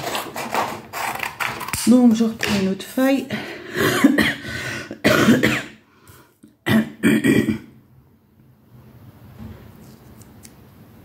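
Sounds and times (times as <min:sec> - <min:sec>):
woman clearing her throat: 0:05.0 - 0:05.8, 0:06.6 - 0:07.8.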